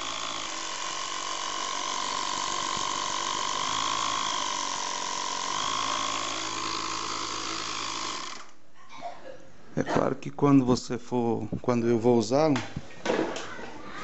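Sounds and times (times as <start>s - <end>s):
air compressor buzzing: 0.0s - 8.6s.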